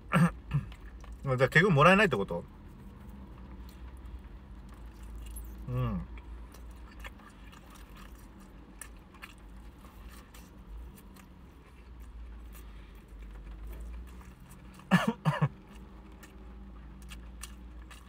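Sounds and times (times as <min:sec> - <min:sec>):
person coughing: 0:00.1 - 0:00.7, 0:14.9 - 0:15.6
soft chewing: 0:00.3 - 0:01.3, 0:02.4 - 0:18.0.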